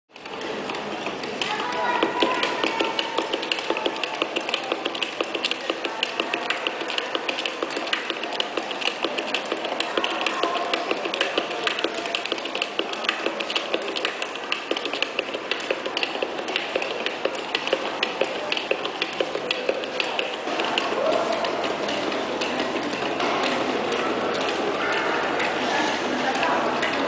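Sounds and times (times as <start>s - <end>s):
hand stamps striking documents: 1.6s - 21.8s.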